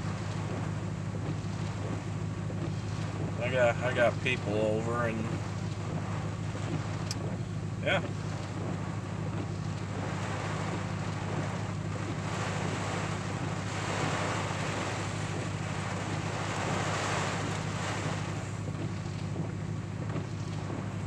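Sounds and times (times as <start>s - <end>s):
wind gusts: 0.0s - 21.0s
rain on windshield and roof: 2.7s - 7.2s.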